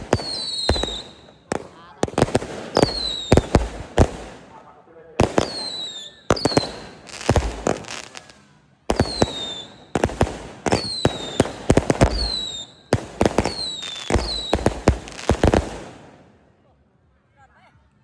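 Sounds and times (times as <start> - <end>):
firework whistle: 0.0 - 1.5, 2.7 - 3.6, 5.4 - 15.6
firework bangs and crackling: 0.0 - 16.3.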